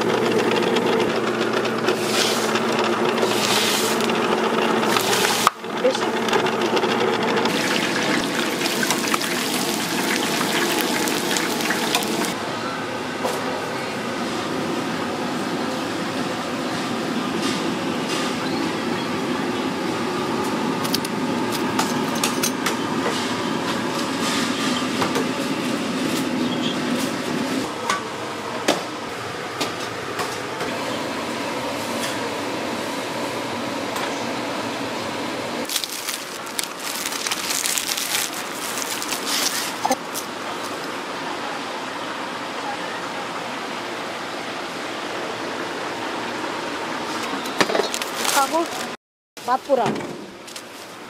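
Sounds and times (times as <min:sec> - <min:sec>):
utensils and dishes clinking: 0:21.8 - 0:23.3.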